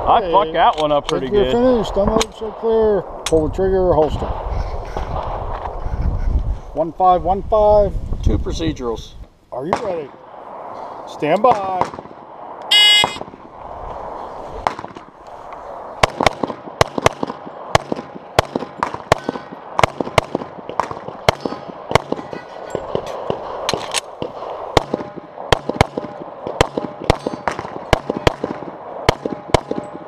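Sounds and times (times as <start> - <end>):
pistol shots: 9.6 - 10.2, 11.4 - 13.4, 16.0 - 30.0.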